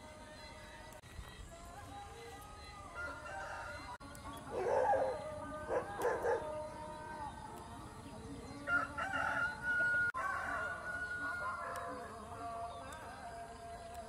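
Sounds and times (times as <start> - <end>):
background music: 0.0 - 14.0
rooster crowing: 2.8 - 4.0, 8.6 - 12.5.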